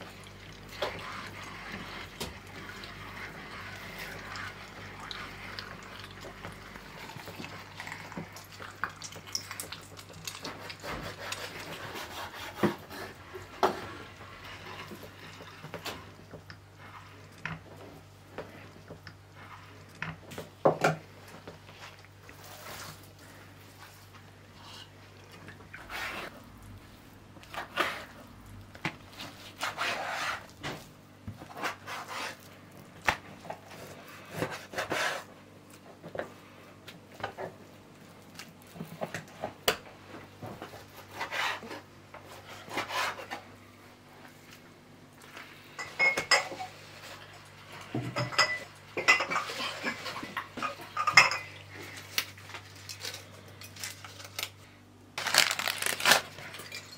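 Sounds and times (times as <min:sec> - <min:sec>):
glass jars clinking: 0:45.8 - 0:46.6, 0:48.1 - 0:50.0, 0:50.9 - 0:51.6, 0:56.5 - 0:56.9
cleaver and utensils clattering: 0:48.0 - 0:51.6, 0:56.4 - 0:56.9.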